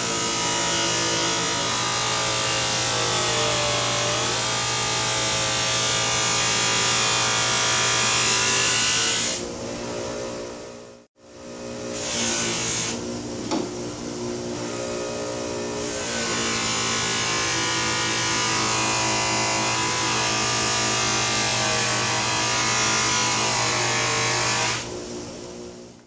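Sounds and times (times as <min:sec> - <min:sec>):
bench grinder buffing knife blade: 0:11.9 - 0:13.0.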